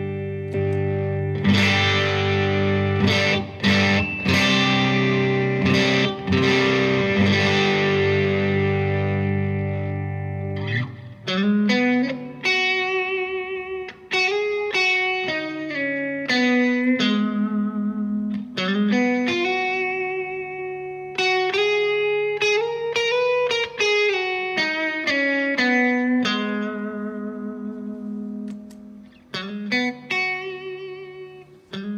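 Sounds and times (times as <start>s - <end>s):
electric guitar chord: 0.0s - 31.9s
electric guitar lead line: 0.0s - 31.9s.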